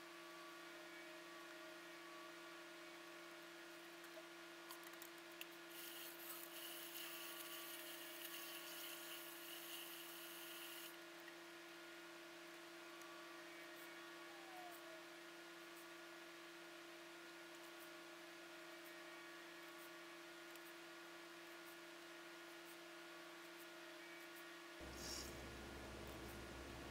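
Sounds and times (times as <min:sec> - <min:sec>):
steady low hum: 0:24.8 - 0:26.9.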